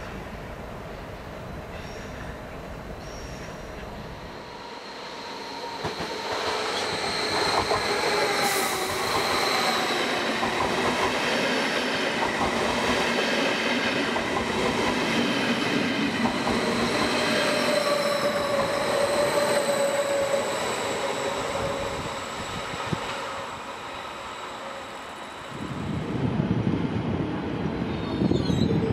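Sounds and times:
train rumbling past: 0.0s - 28.9s
high-pitched whining and squealing: 4.2s - 10.9s, 16.0s - 25.8s.

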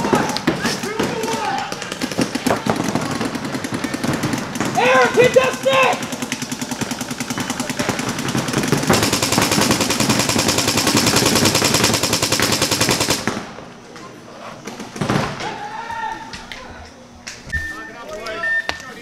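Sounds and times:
paintball markers firing rapidly: 0.0s - 13.5s.

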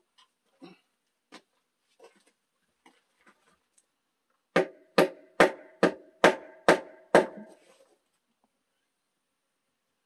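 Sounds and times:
wooden mallet knocking on log: 4.6s - 7.5s.

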